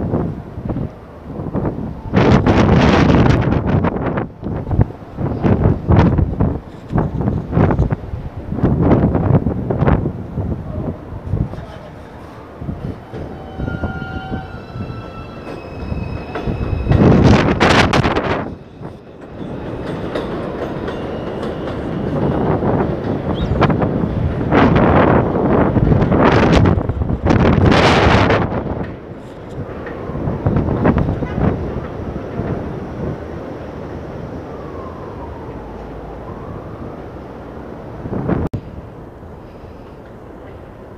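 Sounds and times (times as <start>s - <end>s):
train wheels rumbling on track: 0.0s - 40.9s
faint wailing tone: 12.3s - 17.6s
train motor whine: 12.7s - 19.0s.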